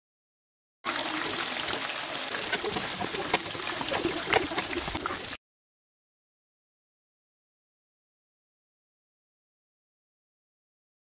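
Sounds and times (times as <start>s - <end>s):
sauce simmering with crackles: 0.9s - 5.4s.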